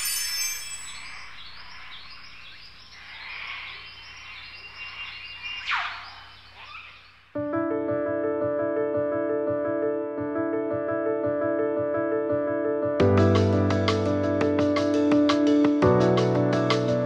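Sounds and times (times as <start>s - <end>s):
music with sustained notes: 0.0s - 1.2s, 13.0s - 17.0s
short chirping calls: 0.0s - 7.3s.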